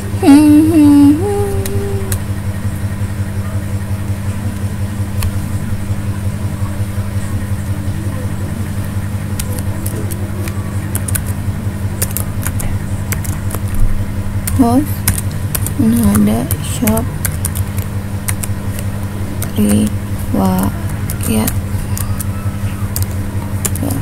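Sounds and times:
person humming: 0.0 - 2.3
low background hum: 0.0 - 24.0
computer keyboard typing: 9.3 - 11.4, 12.0 - 24.0.

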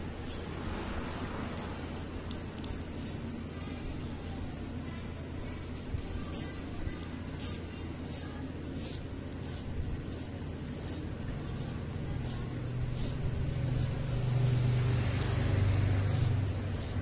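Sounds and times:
blade scraping wire: 0.0 - 3.2, 6.2 - 17.0.

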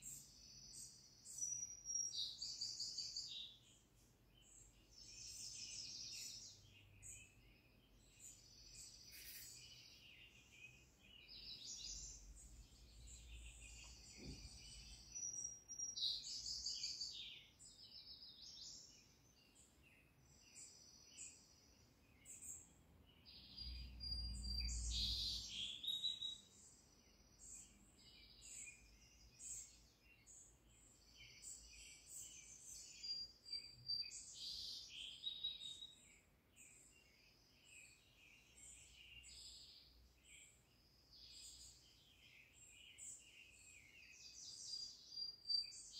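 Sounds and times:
birds chirping and calling: 0.0 - 17.7.

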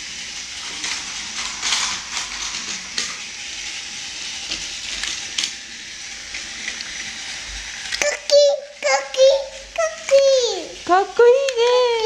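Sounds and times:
plastic track pieces clicking: 0.4 - 3.8, 4.4 - 5.6.

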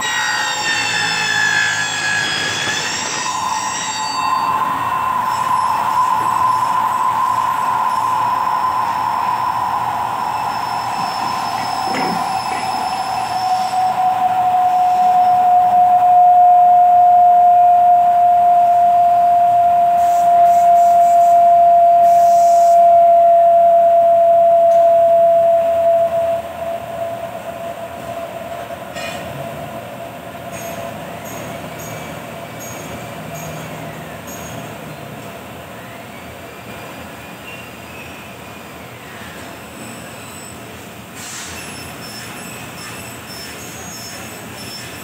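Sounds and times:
milling machine whine: 2.2 - 31.8.

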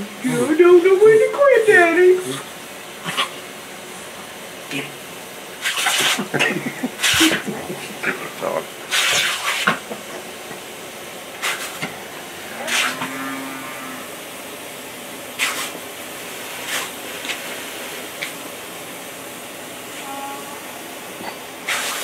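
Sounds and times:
lawn sprinkler hissing: 0.0 - 13.0, 14.0 - 20.1, 20.7 - 22.0
bursts of water spray: 5.6 - 7.5, 8.8 - 9.8, 11.4 - 11.9, 12.6 - 13.1, 15.4 - 15.8, 16.4 - 17.7, 21.6 - 22.0.

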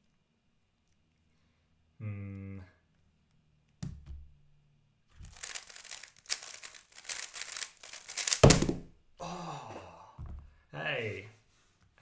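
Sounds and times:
plastic cube turning clatter: 5.2 - 8.6.

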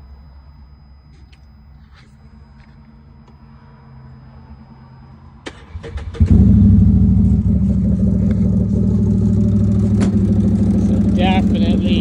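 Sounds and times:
engine running loudly: 6.2 - 12.0.

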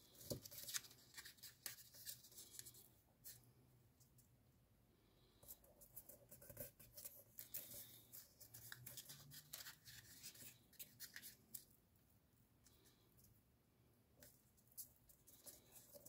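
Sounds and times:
paper rustling and crinkling: 0.0 - 3.4, 7.0 - 11.7.

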